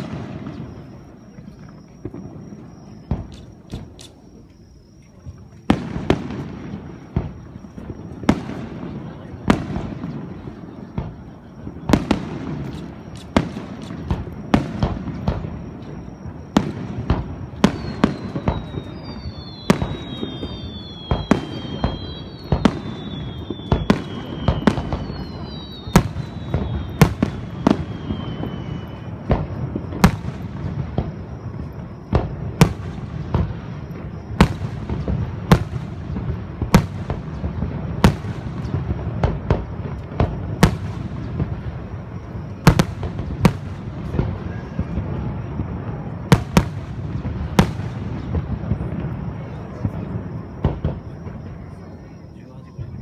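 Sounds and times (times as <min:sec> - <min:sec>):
firework whistles: 0:00.0 - 0:53.0
firework shells bursting: 0:11.8 - 0:31.2.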